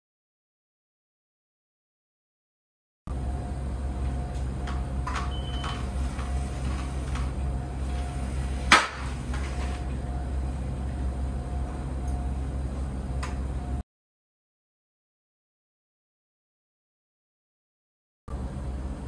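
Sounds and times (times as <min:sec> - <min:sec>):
steady low hum: 0:03.1 - 0:13.8, 0:18.3 - 0:19.0.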